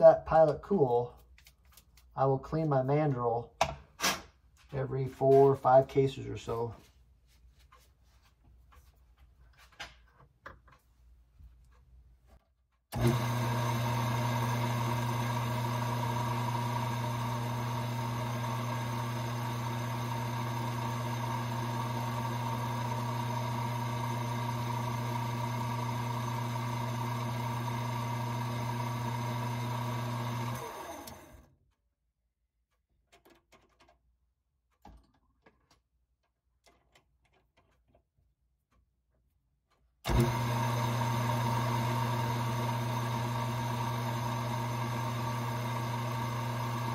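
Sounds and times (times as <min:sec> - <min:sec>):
lathe motor humming: 0:13.0 - 0:31.4, 0:40.1 - 0:46.9.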